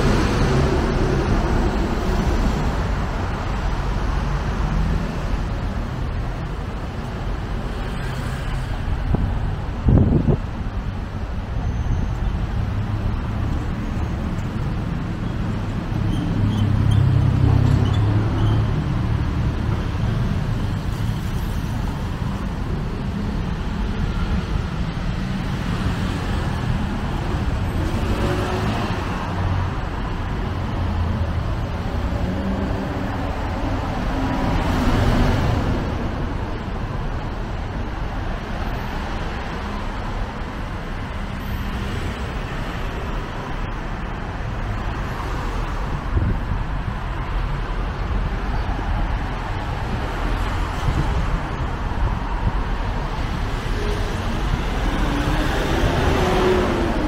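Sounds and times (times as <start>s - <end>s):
road traffic: 0.0s - 57.0s.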